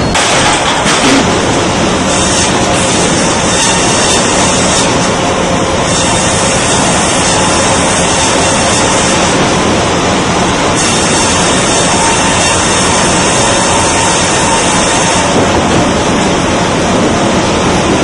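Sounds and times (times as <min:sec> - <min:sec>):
feed machinery din: 0:00.0 - 0:18.0
band saw cutting log: 0:00.2 - 0:09.5, 0:10.7 - 0:15.4.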